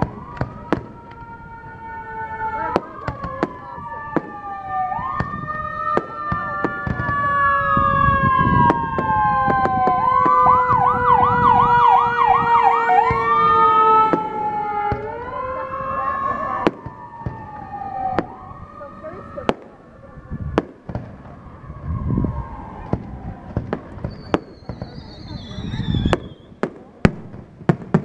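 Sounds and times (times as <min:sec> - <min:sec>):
firework cracks and pops: 0:00.0 - 0:01.3, 0:22.8 - 0:28.0
whistling fireworks shrieking: 0:00.0 - 0:28.0.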